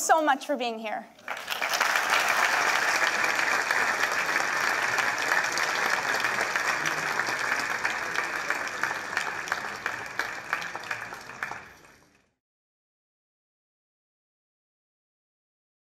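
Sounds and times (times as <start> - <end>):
audience applauding: 1.2 - 12.3.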